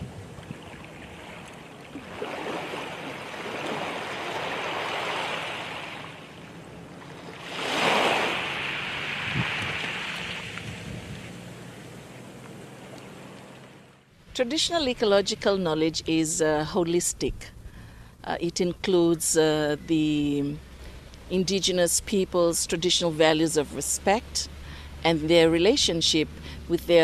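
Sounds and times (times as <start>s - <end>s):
ocean surf washing ashore: 0.0s - 11.5s.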